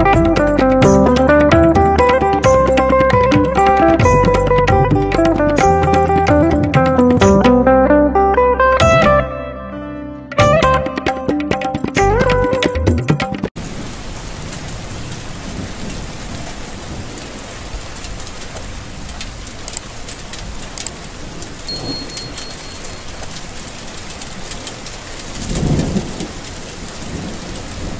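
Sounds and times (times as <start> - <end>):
music: 0.0 - 13.5
steady rain falling: 13.5 - 27.9
low rumble of thunder: 25.4 - 27.9.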